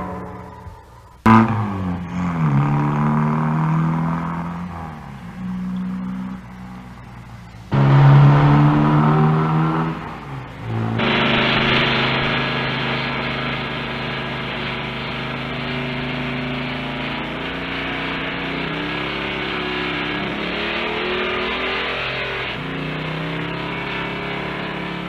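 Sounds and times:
car engine running: 0:00.0 - 0:25.0
road noise: 0:00.0 - 0:25.0.

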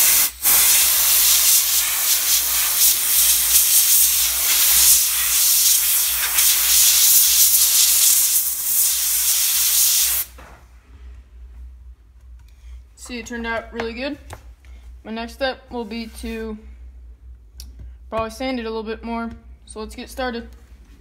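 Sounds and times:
compressed air blow gun hissing: 0:00.0 - 0:10.4.

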